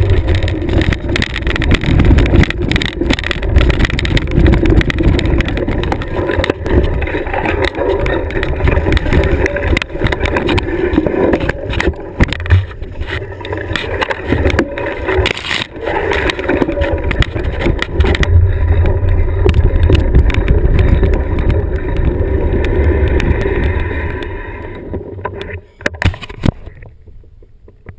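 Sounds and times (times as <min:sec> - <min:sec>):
small knocks and rattles: 0:00.0 - 0:22.1
wind on microphone: 0:00.0 - 0:27.4
vehicle rumbling on rough trail: 0:00.0 - 0:27.9.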